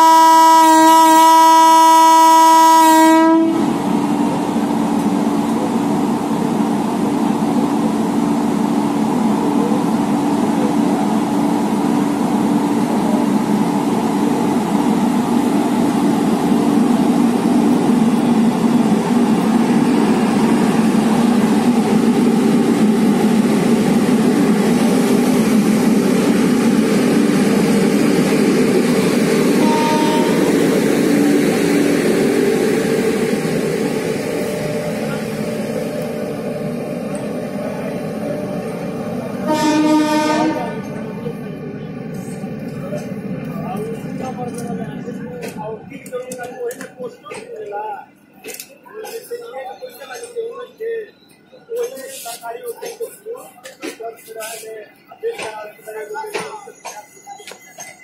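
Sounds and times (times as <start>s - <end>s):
electric locomotive humming: 0.0s - 58.0s
train wheels rolling hiss: 51.8s - 56.6s.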